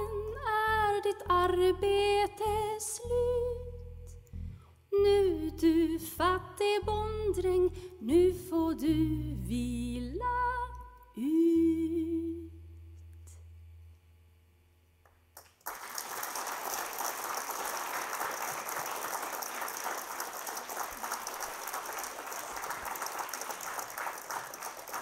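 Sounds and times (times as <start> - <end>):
band's low chord: 0.1 - 7.9
audience applause: 15.4 - 25.0.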